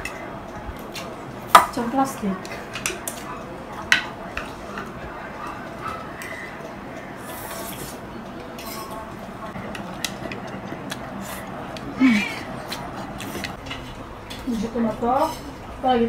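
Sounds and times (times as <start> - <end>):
cutlery clinking on plates: 7.5 - 9.1.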